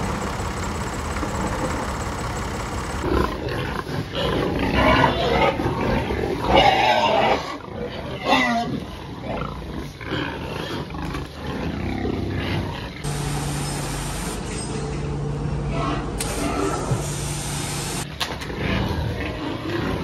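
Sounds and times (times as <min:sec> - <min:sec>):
steady low hum: 0:00.0 - 0:04.2
pigs squealing and grunting: 0:03.0 - 0:13.1, 0:15.7 - 0:17.0, 0:18.5 - 0:20.0.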